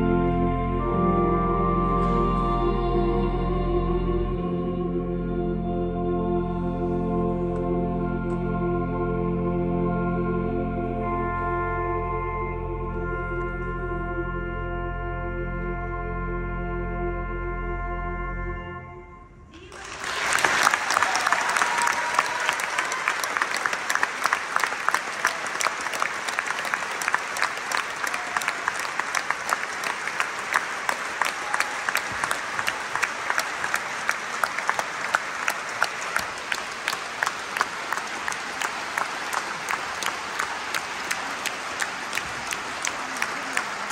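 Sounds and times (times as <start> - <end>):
close person clapping: 19.6 - 43.9
large audience applauding: 19.6 - 43.9.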